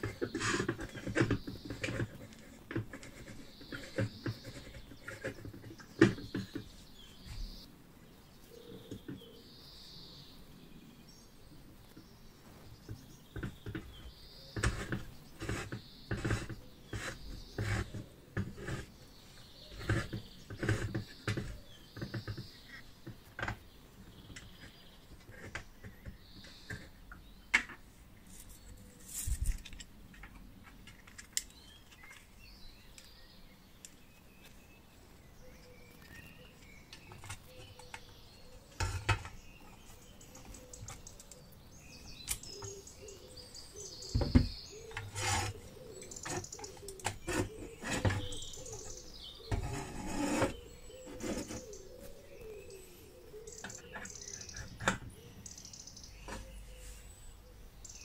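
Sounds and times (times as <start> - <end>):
small parts clicking and tapping: 29.4 - 32.3
bird chirps: 31.3 - 58.0.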